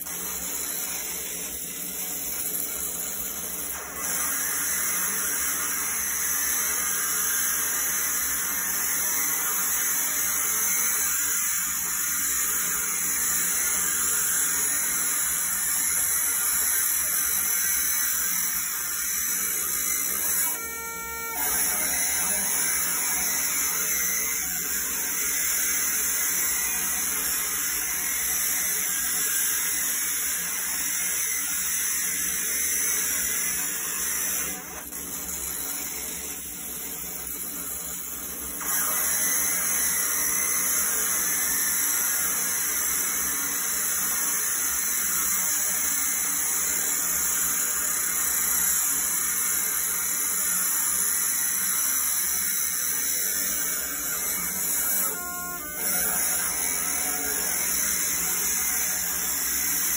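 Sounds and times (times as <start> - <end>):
laser engraver hissing buzz: 0.0 - 59.9.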